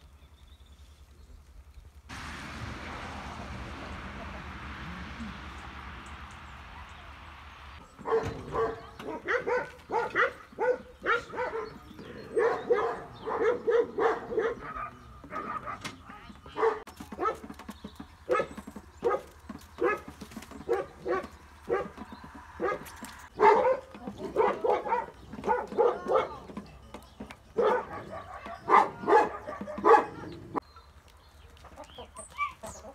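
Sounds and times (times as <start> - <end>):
dog barking: 8.0 - 15.9, 16.5 - 17.5, 18.3 - 20.1, 20.7 - 21.9, 22.6 - 22.8, 23.4 - 26.4, 27.6 - 30.4.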